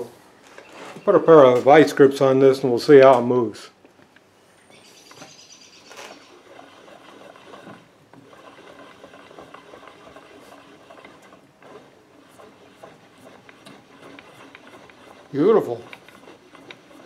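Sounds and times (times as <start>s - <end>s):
table scraping on steel guides: 4.9s - 17.0s
lead screw cranked by hand: 5.3s - 17.0s.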